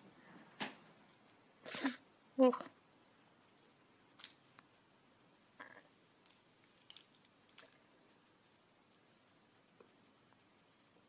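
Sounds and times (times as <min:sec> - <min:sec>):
candy wrapper crackling: 0:06.2 - 0:07.9.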